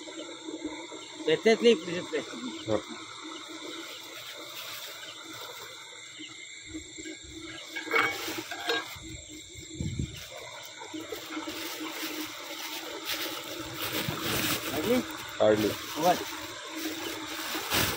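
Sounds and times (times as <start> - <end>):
night creatures chorus: 0.0 - 6.5
water trickling through channel: 0.0 - 17.9.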